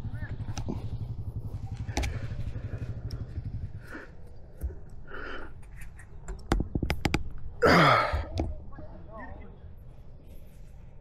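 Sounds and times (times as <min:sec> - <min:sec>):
electric dirt bike drivetrain rumble: 0:00.0 - 0:07.6.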